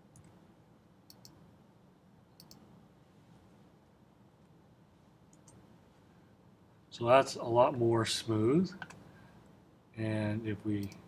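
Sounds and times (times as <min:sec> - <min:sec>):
faint computer mouse clicks: 0:01.1 - 0:01.4, 0:02.4 - 0:02.7, 0:05.3 - 0:05.6.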